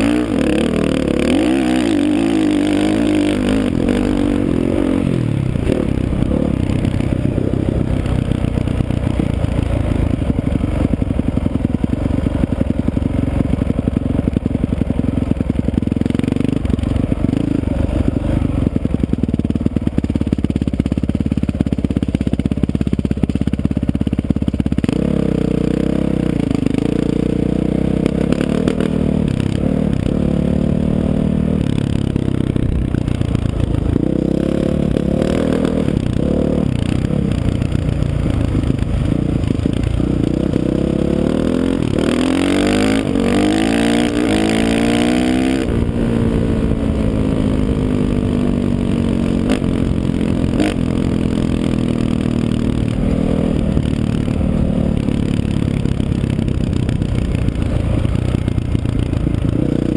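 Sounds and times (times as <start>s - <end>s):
dirt bike engine running hard: 0.0s - 59.9s.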